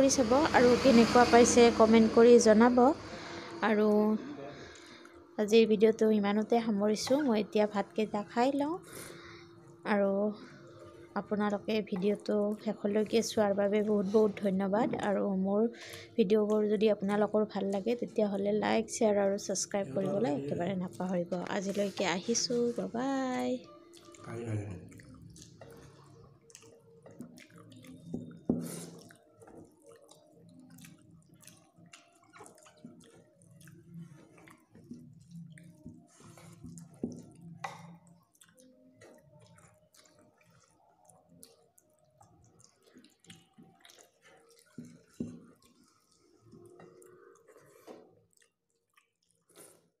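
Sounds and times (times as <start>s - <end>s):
wet chewing: 19.1s - 50.0s.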